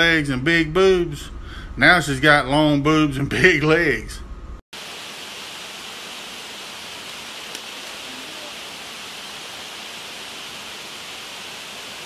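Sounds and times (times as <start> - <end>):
creek water running over rocks: 4.8 - 12.0
faint click: 7.5 - 8.0.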